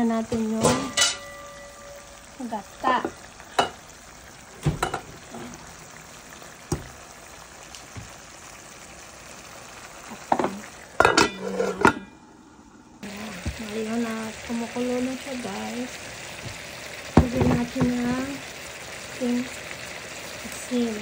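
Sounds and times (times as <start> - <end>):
food sizzling in a pan: 0.0 - 21.0.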